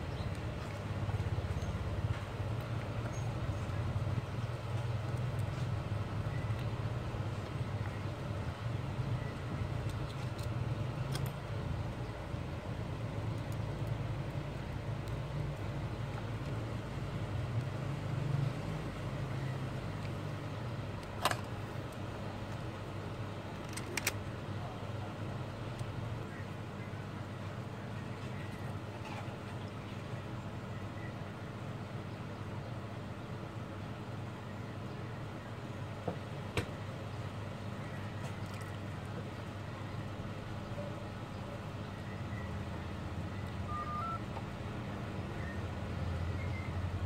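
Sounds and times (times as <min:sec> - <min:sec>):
low background hum: 0:00.0 - 0:47.0.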